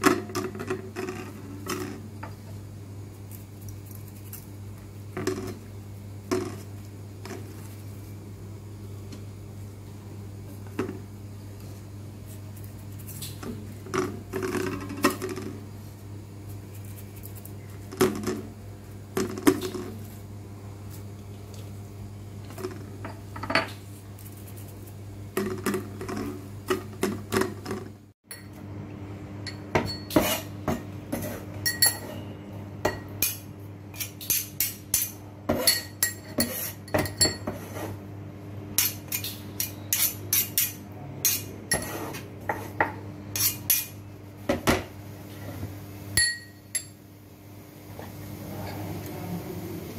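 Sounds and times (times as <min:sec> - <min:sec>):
knocks and scrapes in steel bowl: 0:29.6 - 0:32.3, 0:35.0 - 0:38.0, 0:39.7 - 0:43.9
metal spoon clinking in ceramic bowl: 0:31.7 - 0:32.1, 0:34.3 - 0:37.5, 0:46.2 - 0:47.0.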